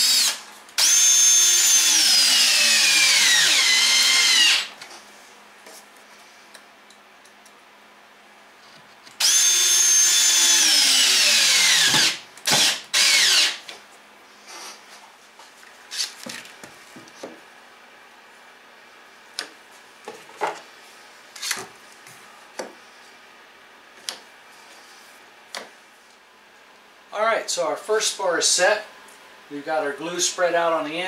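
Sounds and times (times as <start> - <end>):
cordless drill driving screw into wood: 0.0 - 4.7, 9.2 - 13.6.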